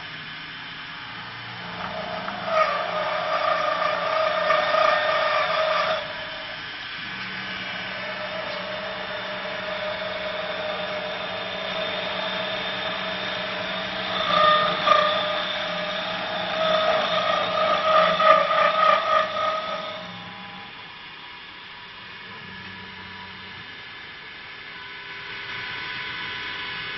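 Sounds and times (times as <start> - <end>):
lathe whining: 0.0 - 24.0
cutter scraping wood: 1.6 - 20.6.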